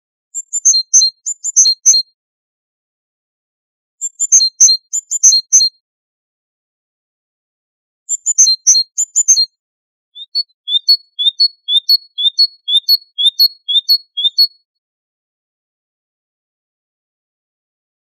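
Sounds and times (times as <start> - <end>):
bird singing: 0.4 - 2.0, 4.0 - 5.7, 8.1 - 9.5, 10.2 - 14.7.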